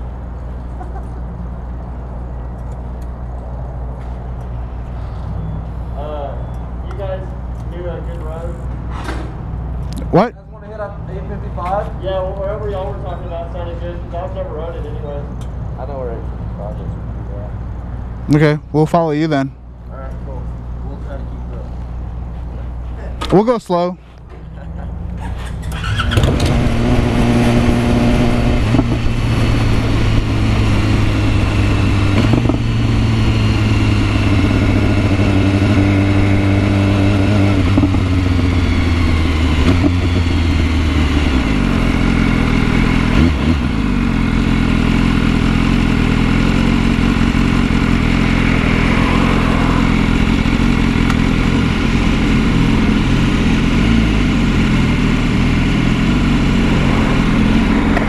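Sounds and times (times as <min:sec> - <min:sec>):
wind and road noise: 0:00.0 - 0:58.0
motorcycle engine running: 0:24.7 - 0:58.0.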